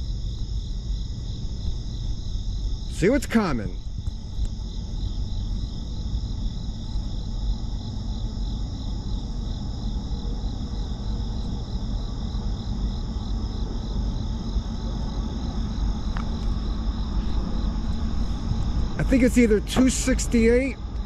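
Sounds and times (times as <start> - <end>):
insects chirping: 0.0 - 21.0
low steady rumble: 0.0 - 21.0.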